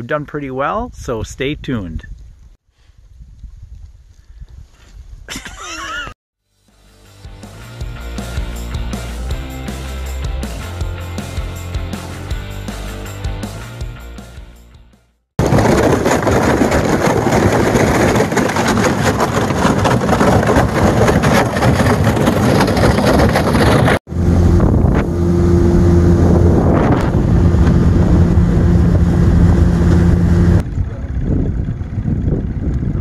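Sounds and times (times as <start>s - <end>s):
hull crackling through ice: 15.4s - 24.0s
outboard motor running: 15.4s - 33.0s
wind and water noise: 15.4s - 33.0s.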